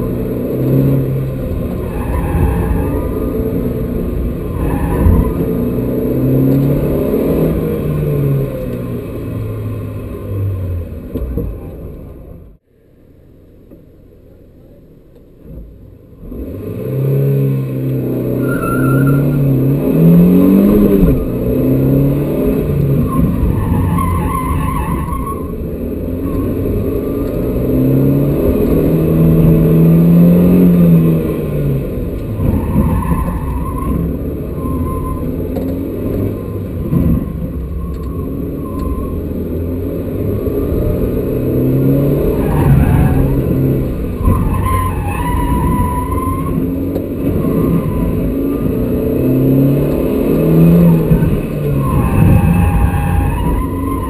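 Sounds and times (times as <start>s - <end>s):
car engine revving: 0.0s - 12.2s, 16.2s - 54.0s
tyres squealing: 22.9s - 25.6s, 32.3s - 40.8s, 41.6s - 49.6s, 50.4s - 54.0s.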